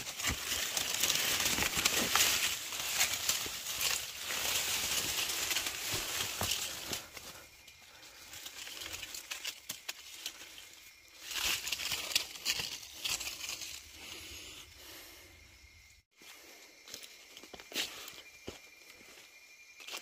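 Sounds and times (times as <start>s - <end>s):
twigs snapping: 0.0s - 7.3s, 8.2s - 10.6s
dry leaves rustling and crackling: 0.0s - 14.0s.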